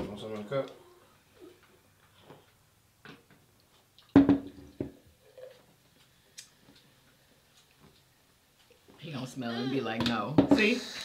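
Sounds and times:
knocks: 4.2s - 5.0s.

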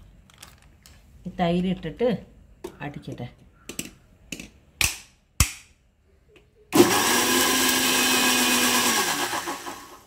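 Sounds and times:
electric mixer grinder running: 6.8s - 10.0s.

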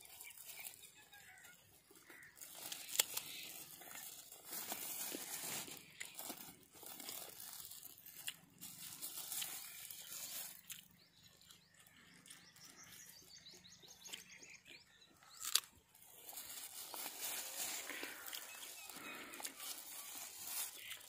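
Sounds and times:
plastic bag crinkling: 0.0s - 11.2s, 15.3s - 21.0s.

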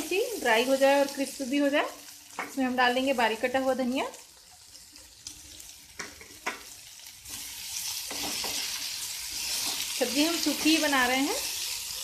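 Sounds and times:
vegetables sizzling in a pan: 0.0s - 12.0s
spatula scraping a pan: 7.3s - 12.0s.

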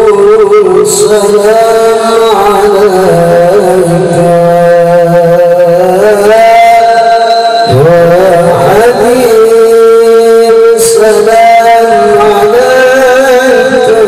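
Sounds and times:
man singing through loudspeaker: 0.0s - 14.0s.

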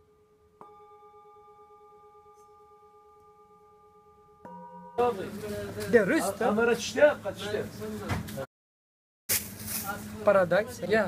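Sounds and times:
singing bowl ringing: 0.0s - 5.4s.

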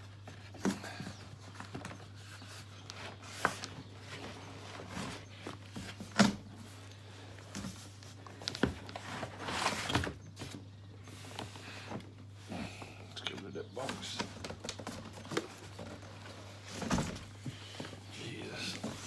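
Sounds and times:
cardboard scraping and rustling: 7.4s - 10.6s, 13.8s - 19.0s.

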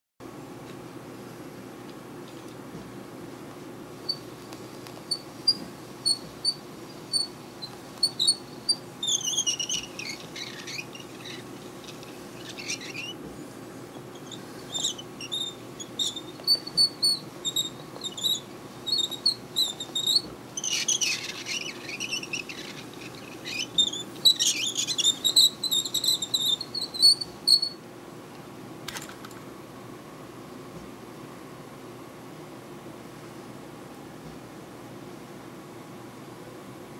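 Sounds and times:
toy wheels squeaking: 5.1s - 13.2s, 13.9s - 27.8s.

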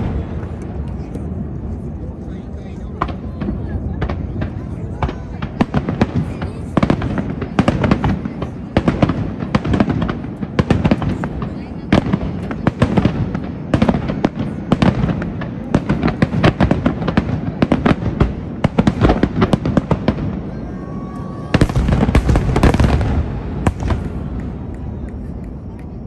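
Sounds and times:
fireworks bursting: 0.0s - 26.0s.

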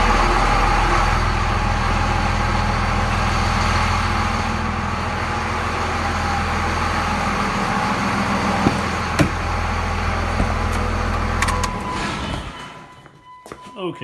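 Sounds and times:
diesel engine idling: 0.0s - 12.9s.

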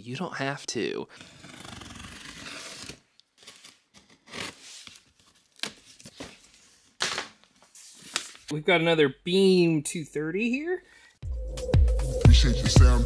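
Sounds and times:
knife slicing through packing tape: 1.2s - 5.0s.

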